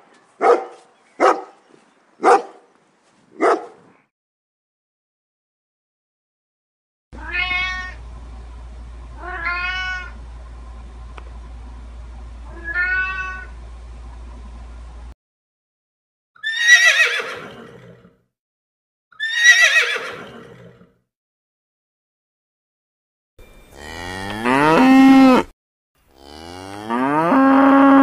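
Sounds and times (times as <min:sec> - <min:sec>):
cat meowing loudly: 0:07.2 - 0:08.0, 0:09.2 - 0:10.2, 0:12.5 - 0:13.5
low steady hum: 0:07.2 - 0:15.2.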